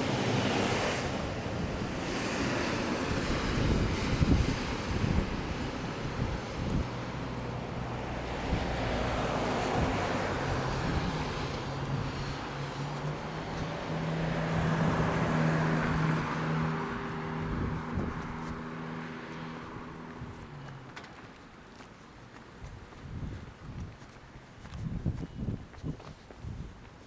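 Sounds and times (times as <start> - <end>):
low engine hum: 0.0 - 21.6
cars driving past: 0.0 - 22.2.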